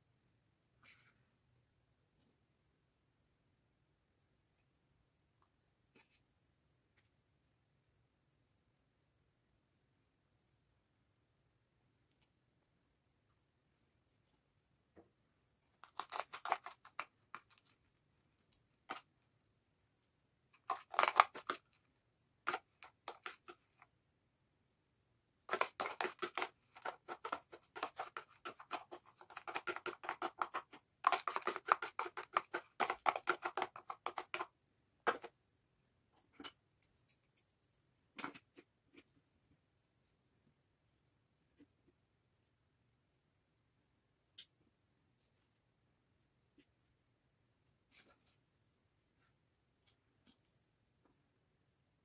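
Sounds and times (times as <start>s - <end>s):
metal spoon scraping plastic container: 15.8s - 17.6s, 20.6s - 21.7s, 22.5s - 23.6s, 25.5s - 34.5s.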